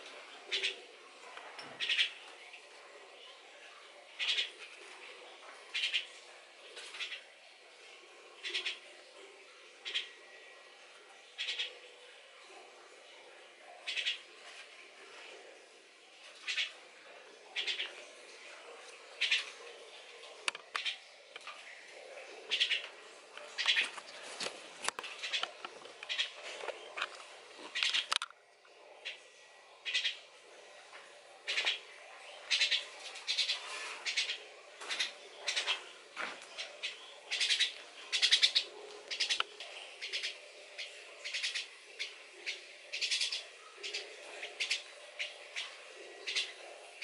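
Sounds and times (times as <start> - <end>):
young starling calling: 36.8 - 39.4, 40.0 - 41.7.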